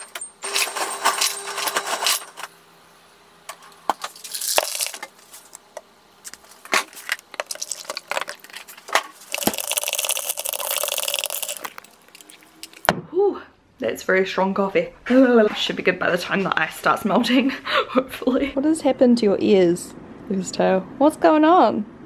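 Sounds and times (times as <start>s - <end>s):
ice cubes clinking in a glass: 4.2s - 5.0s, 7.4s - 8.6s, 9.3s - 12.8s.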